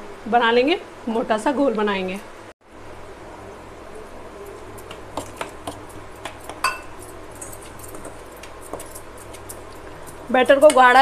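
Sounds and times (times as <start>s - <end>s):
metal spoon clinking in steel bowl: 6.6s - 8.1s.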